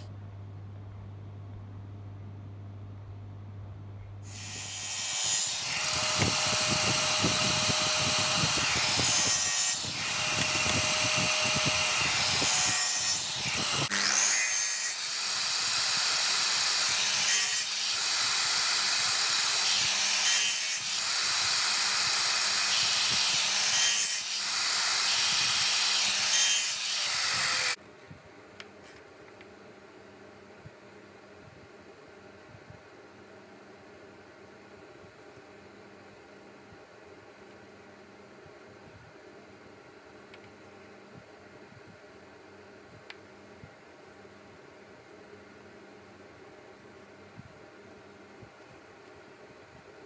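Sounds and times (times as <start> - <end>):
table saw cutting wood: 4.3 - 27.8.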